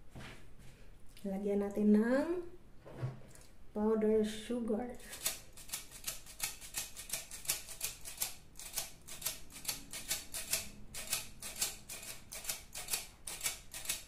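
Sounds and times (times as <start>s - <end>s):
flour sifter clicking and rasping: 5.0s - 14.0s.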